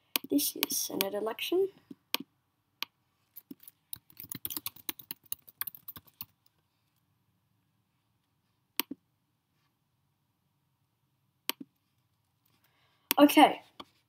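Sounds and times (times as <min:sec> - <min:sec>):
rapid typing on keyboard: 0:03.4 - 0:06.4.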